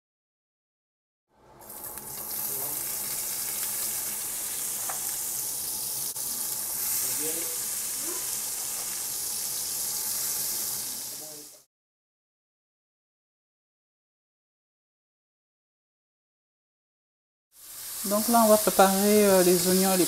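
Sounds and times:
vegetables sizzling in hot oil: 1.6 - 11.7, 17.6 - 20.0.

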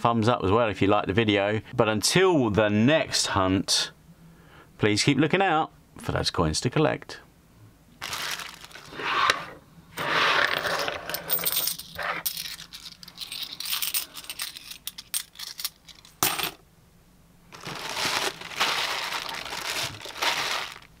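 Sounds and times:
plastic bag crinkling: 8.0 - 9.0, 17.5 - 21.0
coins jingling and clinking: 10.5 - 16.6.

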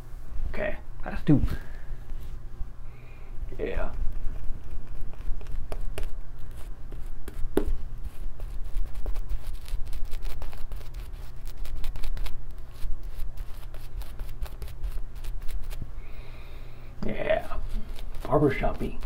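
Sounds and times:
shaving brush in lather: 8.0 - 15.8, 17.4 - 19.0.

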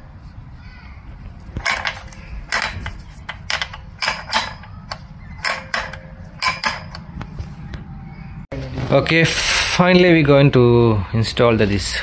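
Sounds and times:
sharp metallic clicks: 1.6 - 7.3.

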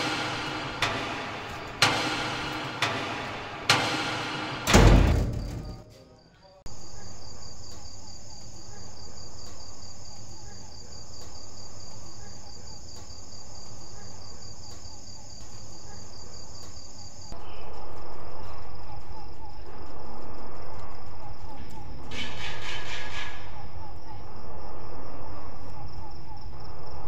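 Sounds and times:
loud thud: 0.0 - 5.9
crickets chirping: 0.0 - 27.0.

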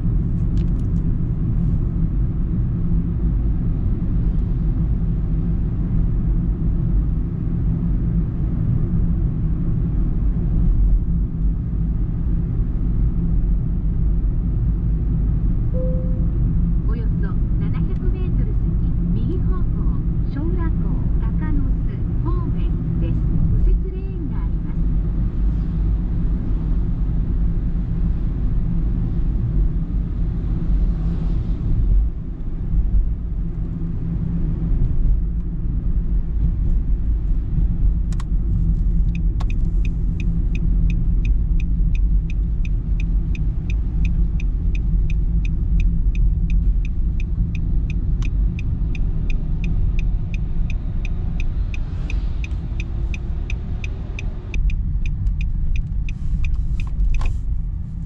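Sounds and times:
car engine and tyre rumble: 0.0 - 58.0
turn signal ticking: 38.0 - 57.8.

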